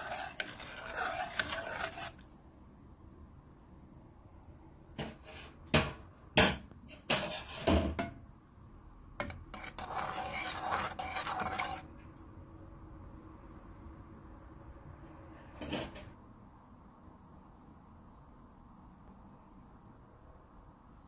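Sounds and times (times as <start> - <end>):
spoon scraping pan: 0.0 - 2.4, 7.0 - 7.9, 9.2 - 12.0.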